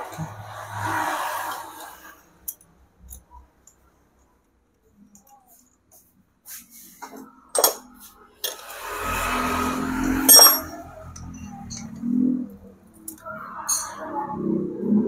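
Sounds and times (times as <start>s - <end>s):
metal fittings clinking: 10.1s - 11.9s.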